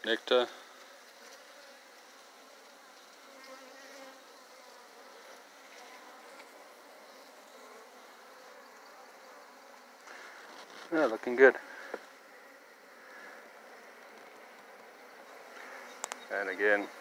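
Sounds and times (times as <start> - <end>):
bees buzzing: 0.1 - 17.0.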